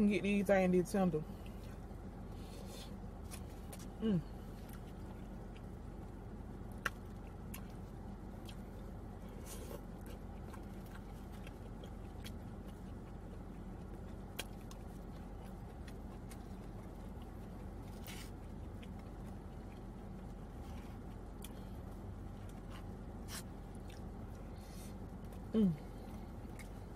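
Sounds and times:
steady low hum: 0.0 - 26.9
chewing mouth sounds: 8.4 - 24.4.

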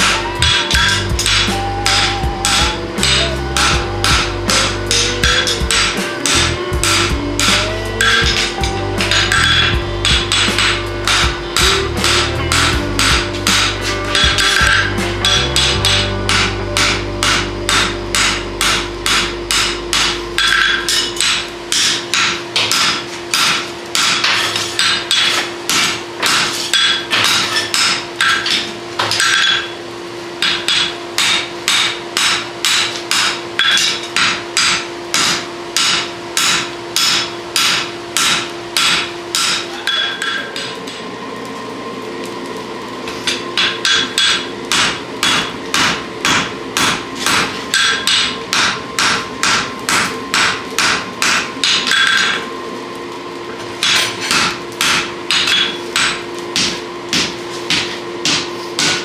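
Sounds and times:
hammer blows on anvil: 0.0 - 29.8, 30.4 - 41.0, 43.3 - 52.5, 53.8 - 59.0
steady hum: 0.0 - 59.0.

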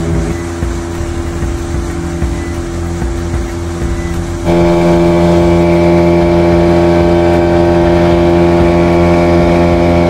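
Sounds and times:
motorboat engine droning: 0.0 - 10.0.

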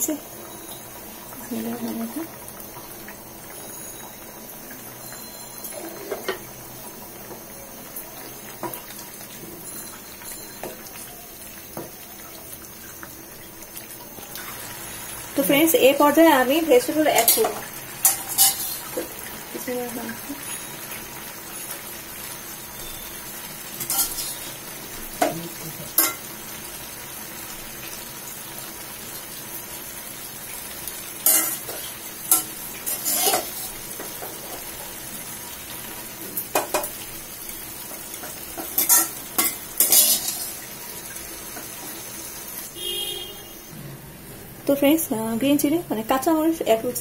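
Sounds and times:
rice simmering in water: 0.0 - 43.8
metal spoon scraping frying pan: 17.2 - 19.0, 23.8 - 24.5, 31.2 - 34.1, 38.3 - 40.6.

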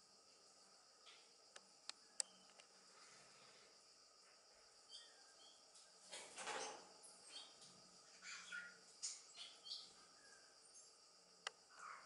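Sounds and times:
small birds chirping: 4.6 - 12.0.

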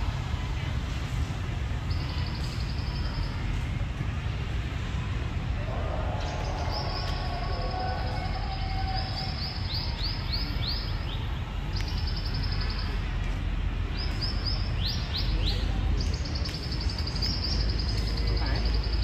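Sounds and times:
city traffic rumble: 0.0 - 19.0.

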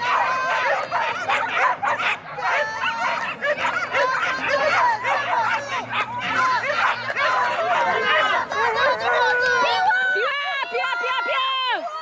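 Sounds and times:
dogs barking: 0.0 - 9.2.

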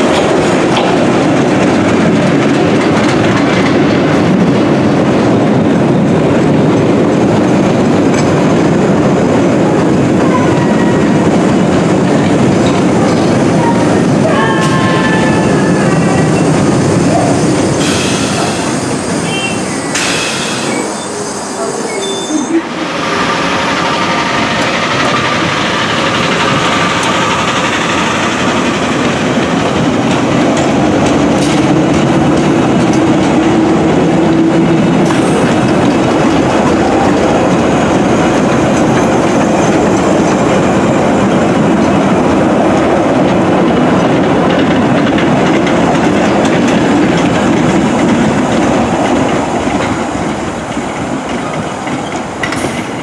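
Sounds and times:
train wheels rumbling on rail: 0.0 - 53.0.

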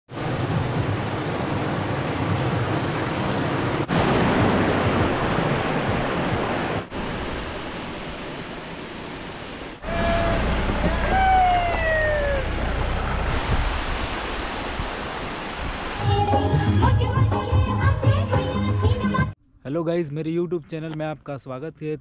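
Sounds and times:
waterfall rushing over rocks: 0.1 - 16.0.

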